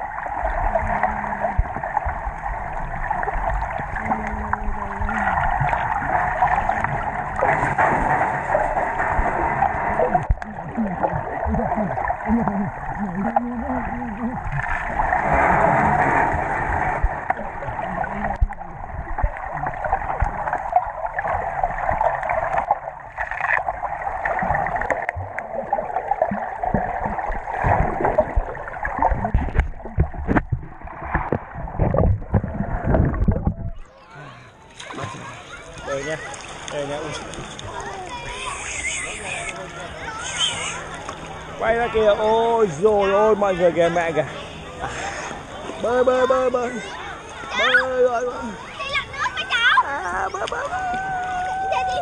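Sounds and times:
muffled underwater churning: 0:00.0 - 0:52.0
small underwater knocks: 0:10.1 - 0:11.2, 0:26.2 - 0:33.8.

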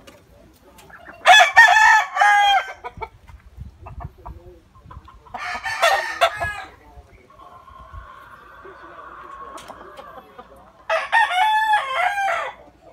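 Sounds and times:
roosters crowing: 0:00.9 - 0:03.1, 0:05.2 - 0:12.9.

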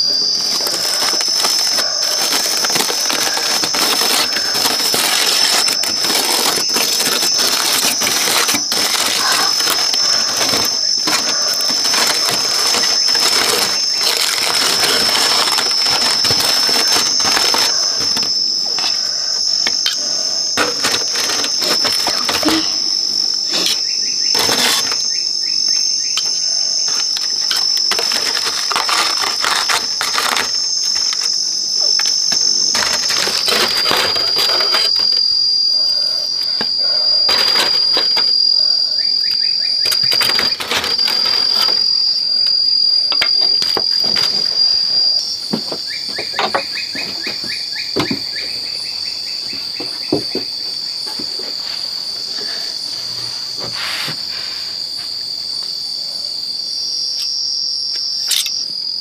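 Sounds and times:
aluminium foil crinkling: 0:00.0 - 0:19.0, 0:19.9 - 0:22.8, 0:23.5 - 0:25.1, 0:26.8 - 0:38.6, 0:39.8 - 0:42.1
insects droning: 0:00.0 - 0:59.0.

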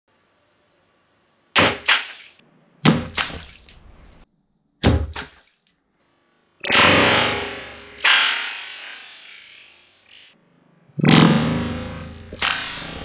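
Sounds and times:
crossbow shot cracking: 0:01.6 - 0:02.2, 0:06.6 - 0:08.8, 0:11.0 - 0:13.0
water balloon bursting: 0:01.6 - 0:03.8, 0:04.8 - 0:05.6.

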